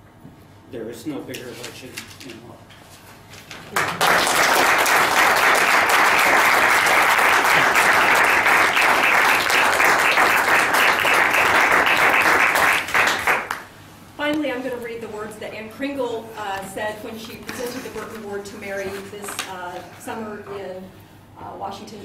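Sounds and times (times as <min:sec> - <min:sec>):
audience applauding: 0:03.7 - 0:13.7.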